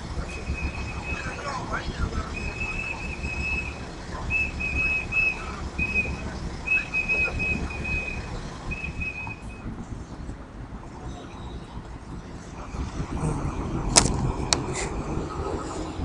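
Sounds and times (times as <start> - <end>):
low street rumble: 0.0 - 16.0
whistle blasts: 0.3 - 1.5, 2.3 - 9.7.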